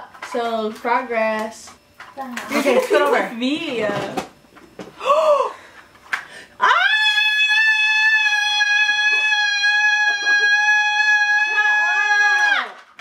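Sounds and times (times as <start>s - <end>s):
woman gasping exclamation: 5.0s - 5.6s
woman screaming in excitement: 6.6s - 12.8s.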